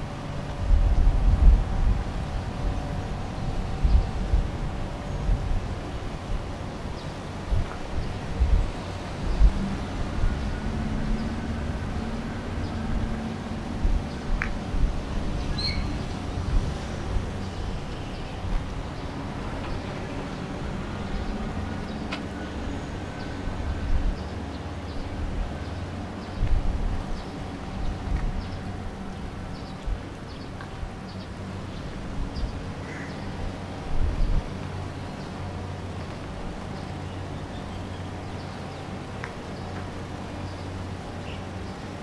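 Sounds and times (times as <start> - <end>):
distant traffic hum: 0.0 - 42.0
small birds chirping: 15.4 - 16.1.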